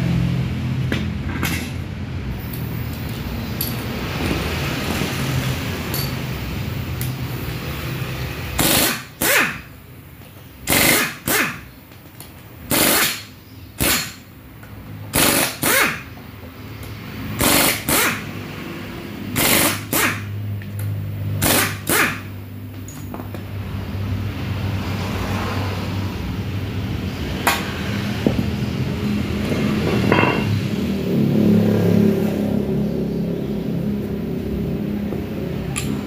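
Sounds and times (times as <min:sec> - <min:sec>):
pneumatic impact wrench hammering: 0:08.5 - 0:09.8, 0:10.6 - 0:14.3, 0:15.0 - 0:16.2, 0:16.8 - 0:18.4, 0:19.3 - 0:23.2.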